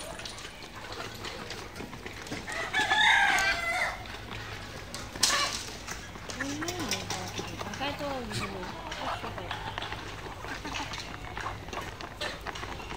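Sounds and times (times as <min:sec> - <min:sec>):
rooster crowing: 0:02.5 - 0:04.1.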